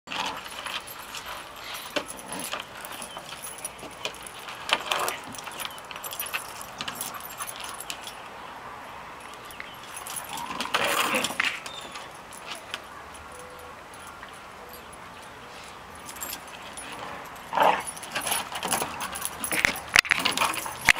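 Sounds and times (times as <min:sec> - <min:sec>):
paws clicking on wooden deck: 0:00.1 - 0:08.2, 0:13.9 - 0:20.9
dogs scuffling: 0:00.1 - 0:08.3, 0:09.2 - 0:20.9
chain collars jangling: 0:00.1 - 0:08.5, 0:09.1 - 0:20.9.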